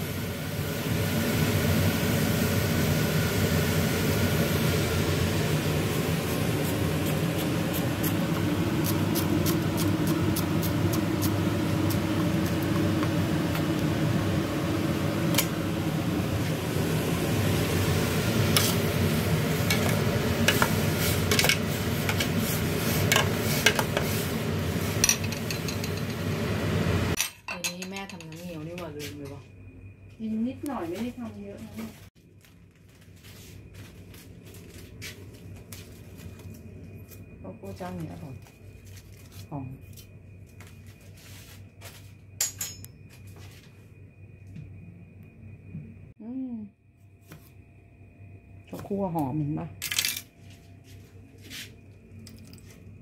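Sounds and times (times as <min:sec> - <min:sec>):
food sizzling in a pan: 0:00.0 - 0:27.2.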